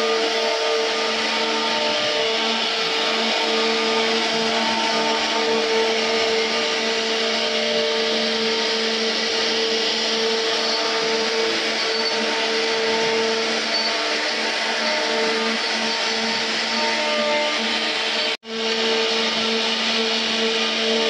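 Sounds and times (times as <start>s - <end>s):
bit cutting wood: 0.0s - 21.0s
router spindle whine: 0.0s - 21.0s.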